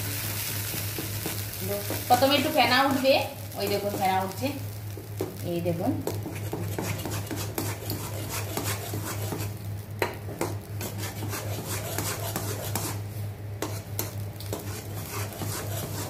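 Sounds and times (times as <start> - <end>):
steady low hum: 0.0 - 16.0
spatula scraping metal pan: 6.2 - 9.5, 10.8 - 13.0, 13.6 - 16.0.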